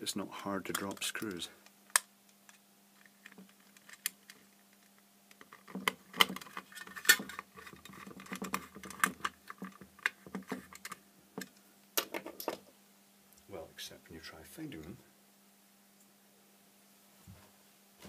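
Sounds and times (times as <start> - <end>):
faint steady hum: 0.0 - 18.0
metal clicks and rattles: 0.7 - 4.5, 5.3 - 12.6.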